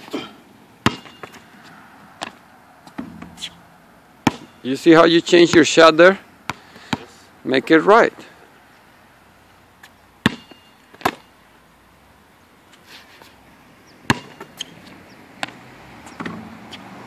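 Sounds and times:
basketball bouncing on hard court: 0:00.8 - 0:01.4, 0:04.2 - 0:04.6, 0:06.5 - 0:07.1, 0:10.2 - 0:11.2, 0:14.0 - 0:14.7.

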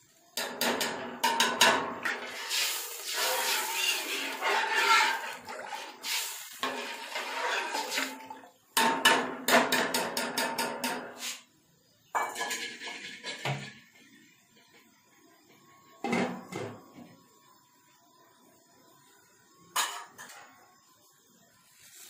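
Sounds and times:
ladle scraping and knocking pot: 0:00.4 - 0:11.1
liquid sloshing in pot: 0:02.1 - 0:08.6.

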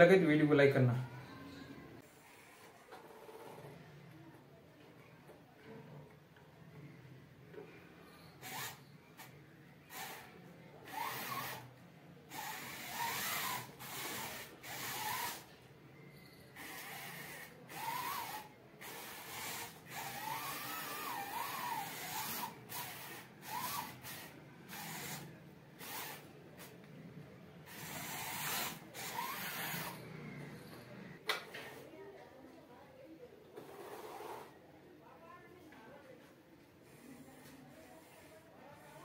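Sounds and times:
small electric motors whirring: 0:08.2 - 0:11.7, 0:12.3 - 0:15.5, 0:16.6 - 0:26.7, 0:27.7 - 0:30.8.

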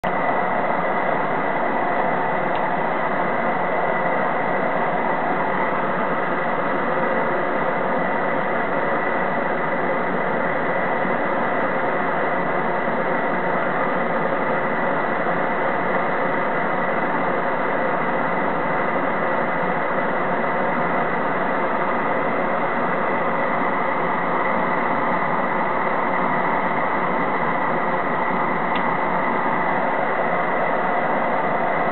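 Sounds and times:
propane torches hissing: 0:13.0 - 0:31.9.

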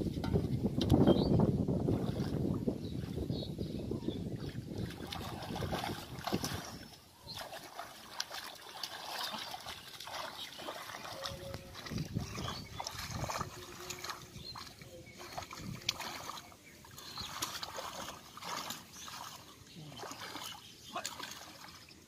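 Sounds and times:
hands splashing in muddy water: 0:04.4 - 0:22.0.

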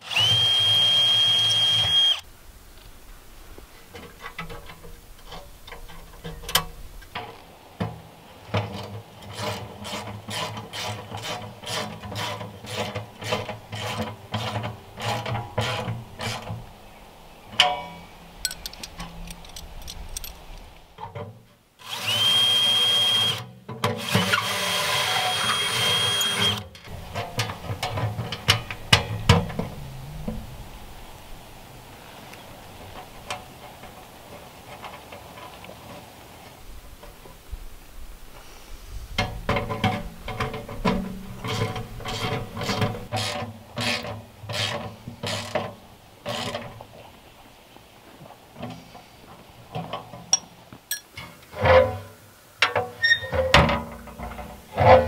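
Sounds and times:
cordless drill whining: 0:00.0 - 0:02.3, 0:21.8 - 0:26.6
ratchet wrench clicking: 0:18.4 - 0:20.5.

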